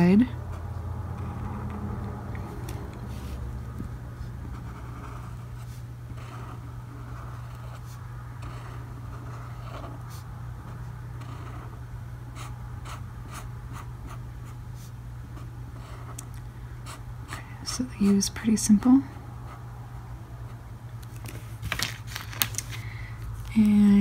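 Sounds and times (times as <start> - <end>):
steady low hum: 0.0 - 24.0
brush pen scratching on paper: 4.2 - 11.8.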